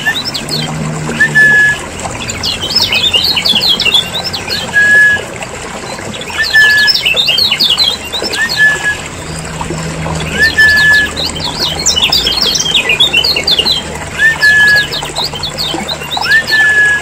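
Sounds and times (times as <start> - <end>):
bird whistled note: 1.2 - 1.8, 4.5 - 5.3, 6.3 - 7.1, 8.3 - 9.0, 10.3 - 11.2, 14.2 - 15.0, 16.2 - 17.0.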